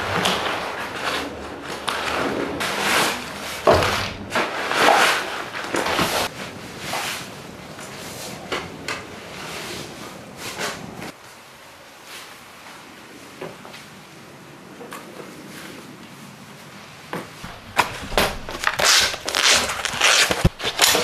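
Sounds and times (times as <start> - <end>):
backpack fabric rustling: 17.4 - 21.0.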